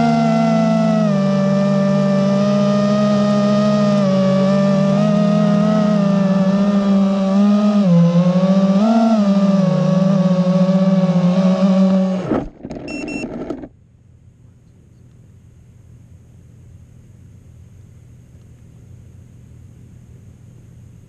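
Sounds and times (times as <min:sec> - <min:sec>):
quadcopter motors buzzing: 0:00.0 - 0:13.7.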